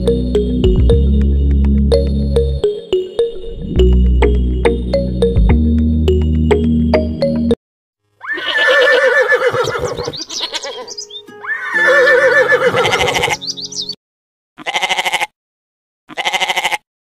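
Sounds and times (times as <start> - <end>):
horse whinnies: 8.2 - 13.4.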